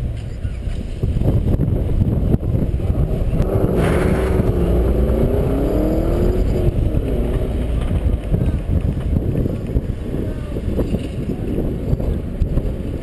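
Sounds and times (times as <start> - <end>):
low road and wind rumble: 0.0 - 13.0
car engine revving: 2.5 - 10.3.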